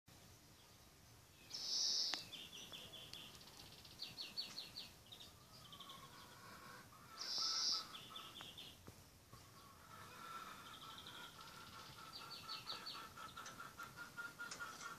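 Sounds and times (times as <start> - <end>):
cockatiel calling: 1.5 - 2.2, 5.7 - 8.4
cockatiel chirps: 7.2 - 8.3.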